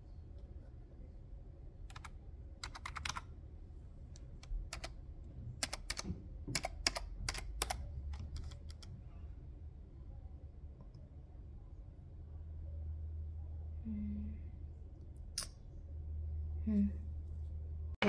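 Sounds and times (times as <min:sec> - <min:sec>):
laptop keyboard typing: 0:01.9 - 0:03.3, 0:04.4 - 0:05.0, 0:05.6 - 0:08.9.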